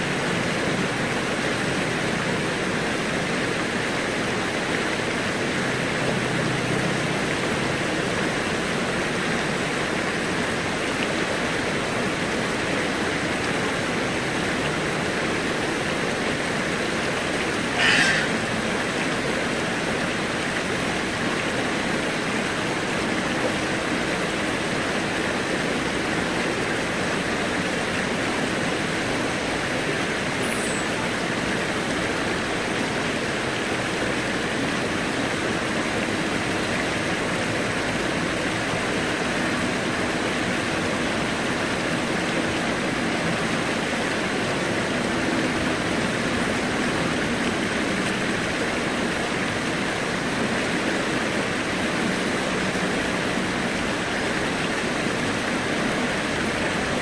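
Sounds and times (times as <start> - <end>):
low hum of city traffic: 0.0 - 57.0
stream rushing over rocks: 0.0 - 57.0.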